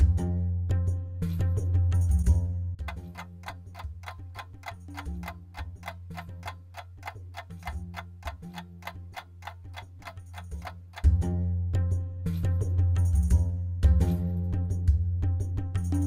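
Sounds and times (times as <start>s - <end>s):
quiet background music: 0.0s - 16.0s
clock ticking fast: 2.9s - 11.2s.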